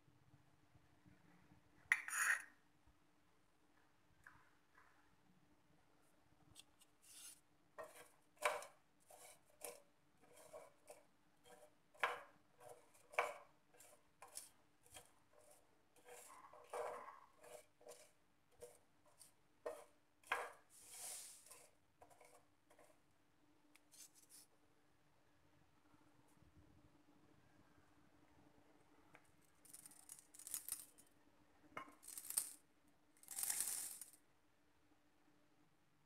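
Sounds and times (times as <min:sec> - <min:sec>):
wooden spatula scraping metal pan: 0:07.0 - 0:23.0.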